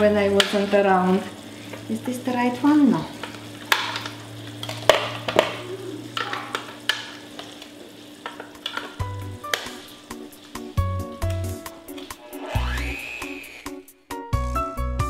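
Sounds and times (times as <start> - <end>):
caramel sizzling: 0.0 - 14.7
steady musical tones: 9.1 - 14.8.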